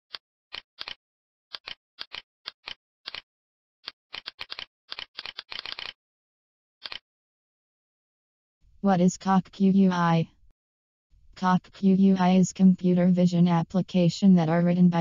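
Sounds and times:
computer mouse clicking: 0:00.1 - 0:03.2, 0:03.8 - 0:06.0, 0:06.8 - 0:07.0.

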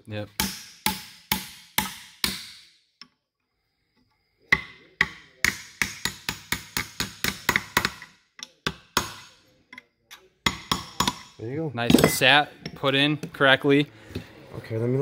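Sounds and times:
hammer tapping on aluminum bar: 0:00.4 - 0:02.7, 0:04.5 - 0:09.4, 0:10.1 - 0:11.4.

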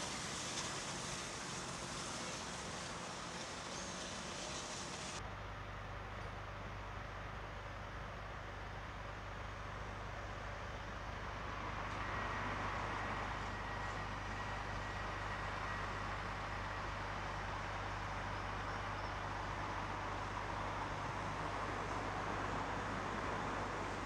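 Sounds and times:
train rushing noise: 0:00.0 - 0:05.2.

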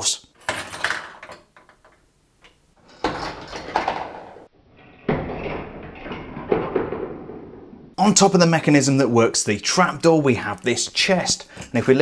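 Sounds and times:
plastic toy parts clattering: 0:00.4 - 0:07.0.

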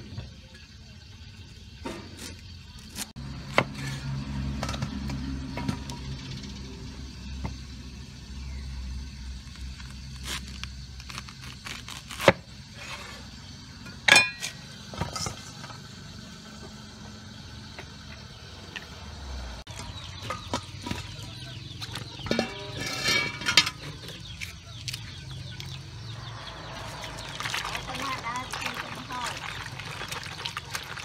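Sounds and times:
water running into plastic basin: 0:26.6 - 0:31.0.

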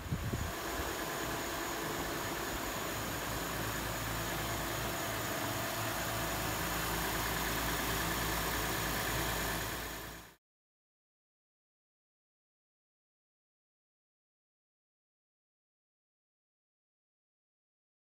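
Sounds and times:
car engine idling: 0:00.0 - 0:10.4
outdoor hiss: 0:00.0 - 0:10.4.

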